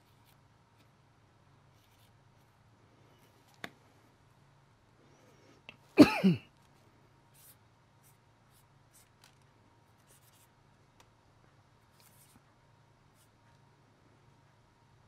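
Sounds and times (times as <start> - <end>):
marker pen scratching: 0.0 - 1.0, 1.7 - 2.6, 7.3 - 9.4, 10.0 - 10.5, 11.9 - 12.4.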